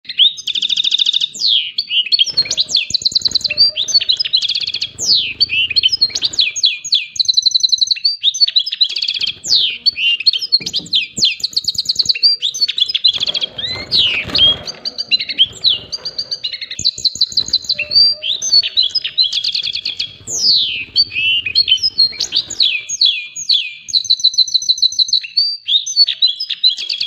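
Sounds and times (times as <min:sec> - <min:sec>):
finch song: 0:00.1 - 0:27.0
wing flapping and scuffling: 0:13.0 - 0:22.9.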